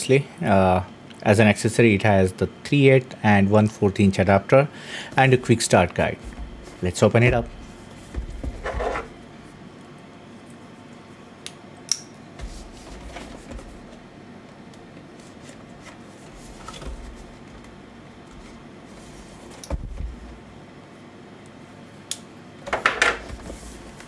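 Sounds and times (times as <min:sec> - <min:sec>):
cardboard box being handled: 0:06.2 - 0:09.2.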